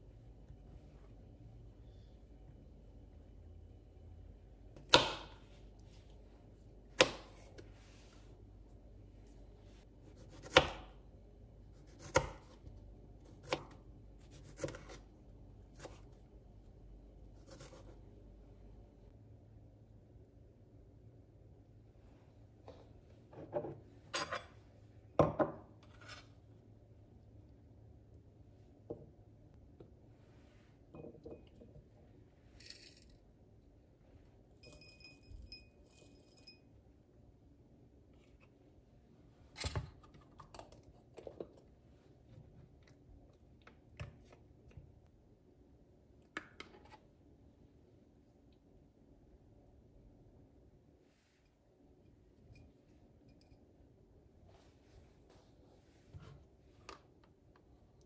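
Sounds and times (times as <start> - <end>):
faint ringing tone: 34.6 - 36.8.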